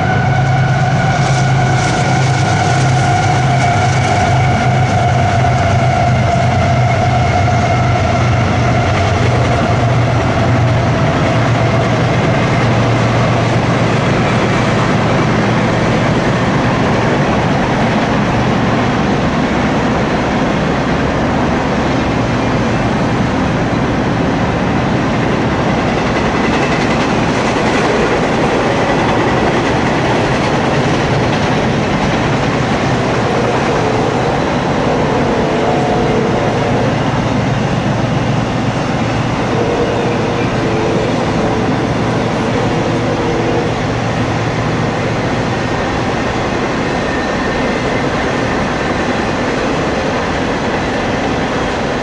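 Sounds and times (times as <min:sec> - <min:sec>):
diesel locomotive engine: 0:00.0 - 0:52.0
freight cars rolling wheel noise: 0:00.0 - 0:52.0
steady whine dropping in pitch: 0:27.2 - 0:50.0.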